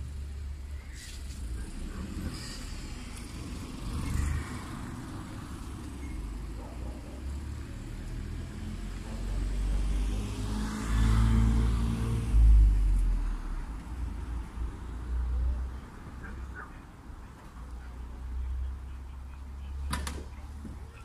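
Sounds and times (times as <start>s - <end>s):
car driving past: 7.2s - 13.8s.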